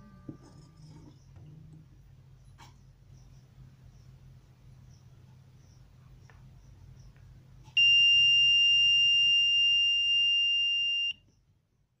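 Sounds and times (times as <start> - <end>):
high-pitched buzzer beep: 7.8 - 11.2.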